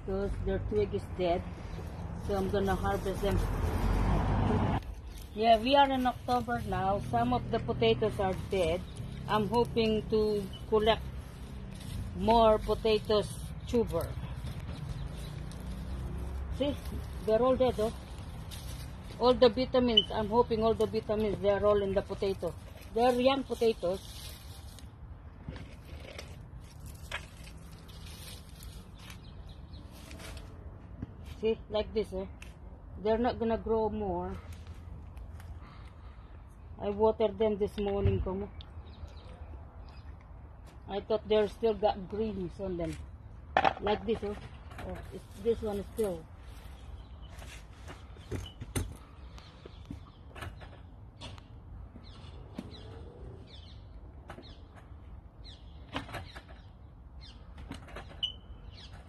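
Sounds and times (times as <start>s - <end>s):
dry plant and soil rustling: 0.0s - 31.6s, 44.0s - 50.2s.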